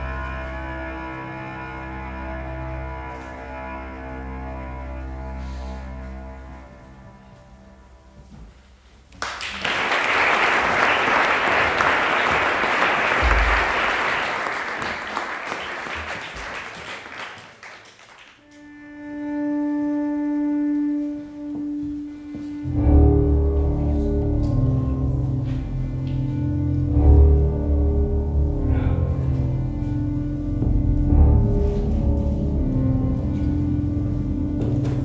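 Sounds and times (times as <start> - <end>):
deep cello notes: 0.0 - 8.3, 18.4 - 35.0.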